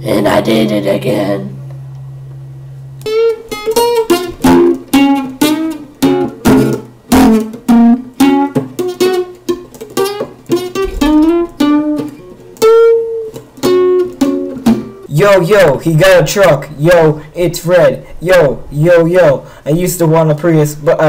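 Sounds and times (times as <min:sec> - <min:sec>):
acoustic guitar plucked notes: 0:03.0 - 0:18.6.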